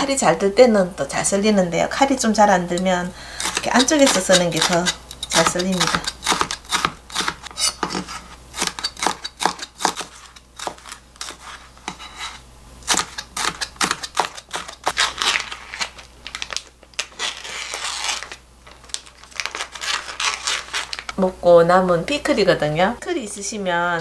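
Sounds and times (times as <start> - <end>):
scissors cutting plastic pack: 3.3 - 11.6, 12.9 - 21.2
knife slicing on cutting board: 3.4 - 14.7
plastic crinkling: 13.0 - 21.2.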